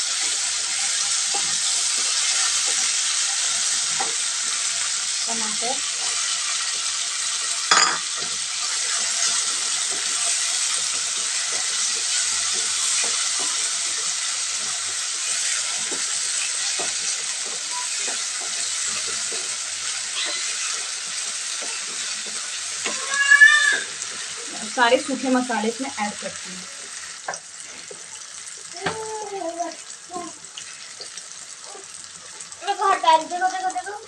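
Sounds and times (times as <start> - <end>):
vegetables sizzling in hot oil: 0.0 - 34.0.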